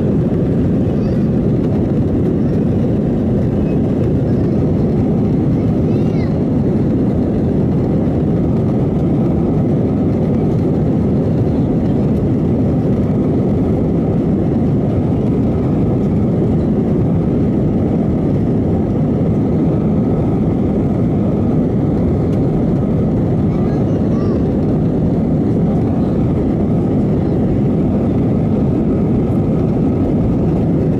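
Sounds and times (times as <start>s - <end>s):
airliner jet engines taxiing: 0.0s - 30.9s.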